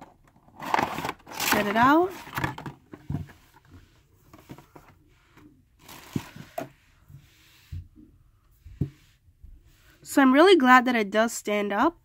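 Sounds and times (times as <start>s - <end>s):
plastic packaging rustle: 0.5s - 2.9s.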